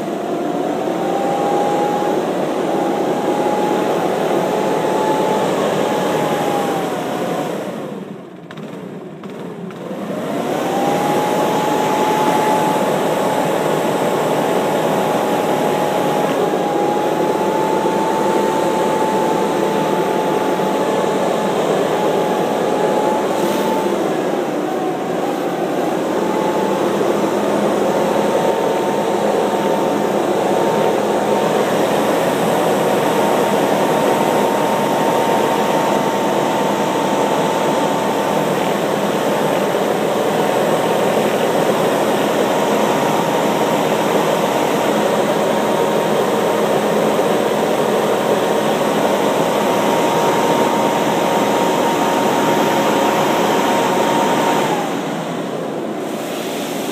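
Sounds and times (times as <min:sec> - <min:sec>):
leaf blower running: 0:00.0 - 0:56.9.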